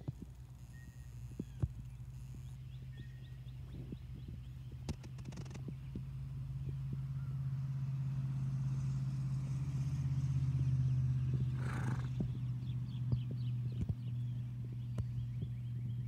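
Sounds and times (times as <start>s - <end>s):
low motor hum: 0.0s - 16.0s
horse hoofbeats on grass: 11.0s - 16.0s
horse blowing: 11.5s - 12.2s.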